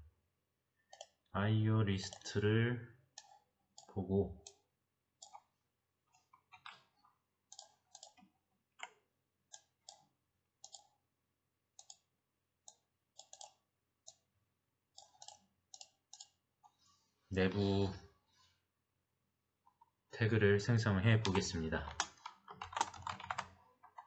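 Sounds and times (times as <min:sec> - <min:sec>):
computer mouse clicks: 0:00.9 - 0:01.2, 0:05.2 - 0:05.5, 0:07.5 - 0:10.9, 0:11.8 - 0:12.1, 0:12.7 - 0:14.2, 0:15.0 - 0:16.4.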